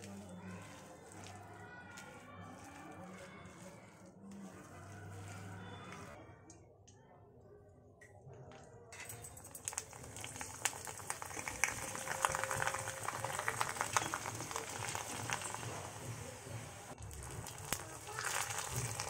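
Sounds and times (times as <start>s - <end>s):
food deep-frying in hot oil: 9.0s - 19.0s.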